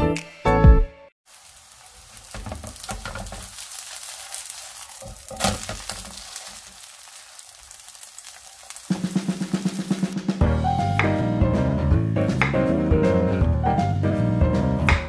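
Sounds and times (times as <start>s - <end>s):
pancake sizzling in oil: 1.2s - 10.2s
spatula scraping a pan: 1.7s - 10.2s
drum roll: 8.9s - 11.1s
background music: 10.2s - 15.0s.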